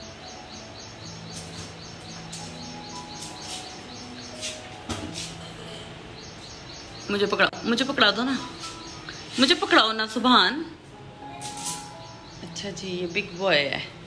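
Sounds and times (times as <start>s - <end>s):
small bird chirping: 0.0s - 4.6s.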